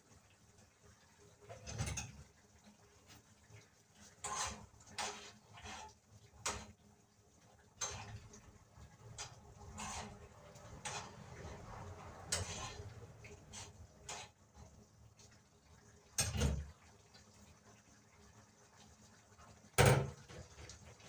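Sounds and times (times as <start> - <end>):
pots and utensils clattering: 1.4 - 2.4, 4.1 - 6.8, 7.8 - 14.4, 16.2 - 16.7, 19.8 - 21.0.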